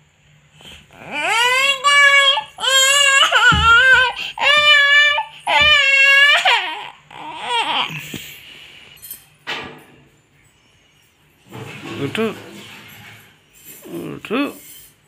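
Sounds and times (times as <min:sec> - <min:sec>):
girl crying and wailing: 0:01.0 - 0:08.0.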